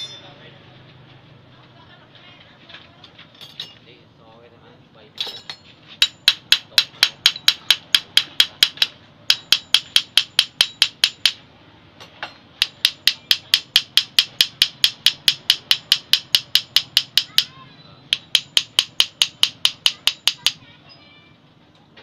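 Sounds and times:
metal tool tapping on metal: 5.2 - 11.4, 12.0 - 17.5, 18.1 - 20.6.

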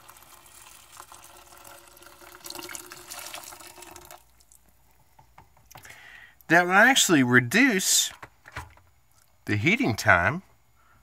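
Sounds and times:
water pouring from kettle: 0.0 - 4.5.

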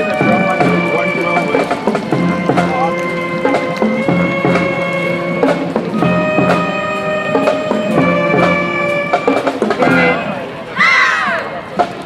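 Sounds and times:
drum beats: 0.0 - 10.6, 11.7 - 12.0
brass chords: 0.0 - 10.7.

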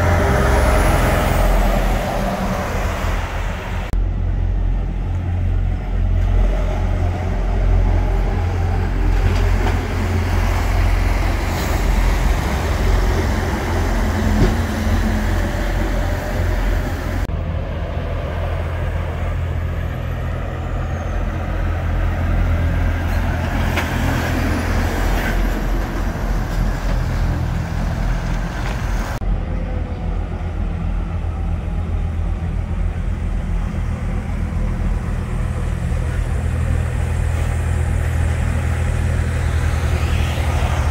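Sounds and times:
diesel truck engine rumbling: 0.0 - 40.9
road and tyre hiss: 0.0 - 40.9.

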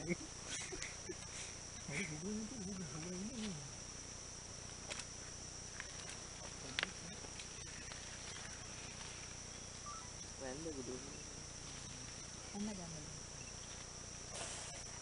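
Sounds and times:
person murmuring: 0.0 - 3.8
insects droning: 0.0 - 15.0.

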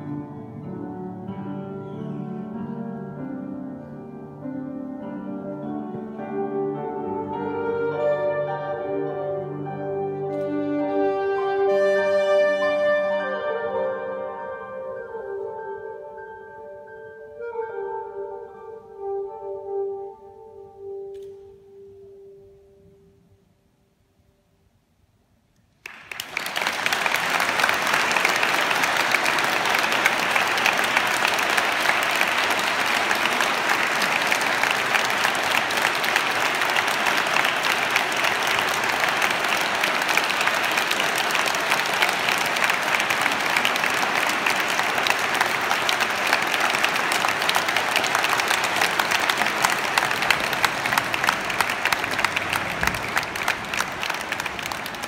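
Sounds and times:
audience applauding: 25.8 - 55.0.

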